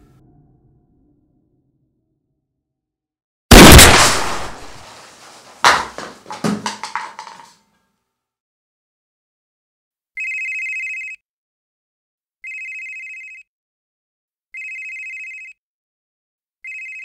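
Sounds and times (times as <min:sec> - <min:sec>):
telephone ringing: 0:10.2 - 0:11.2, 0:12.4 - 0:13.4, 0:14.6 - 0:15.5, 0:16.6 - 0:17.0.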